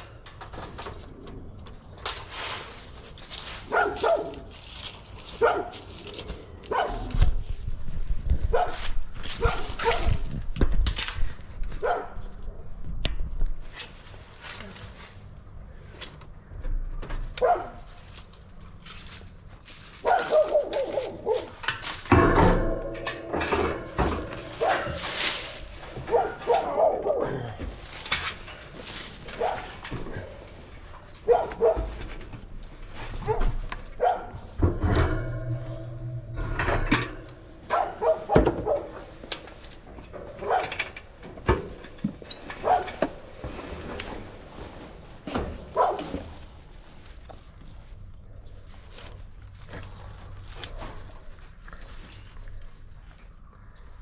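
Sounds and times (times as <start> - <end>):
dog barking: 3.7 - 4.5, 5.4 - 5.8, 6.7 - 7.1, 8.5 - 8.8, 9.4 - 10.2, 11.8 - 12.2, 17.4 - 17.9, 20.0 - 21.5, 24.6 - 25.0, 26.1 - 27.5, 29.4 - 29.8, 31.2 - 31.9, 33.2 - 34.4, 37.7 - 39.0, 40.4 - 40.8, 42.6 - 43.0, 45.8 - 46.1.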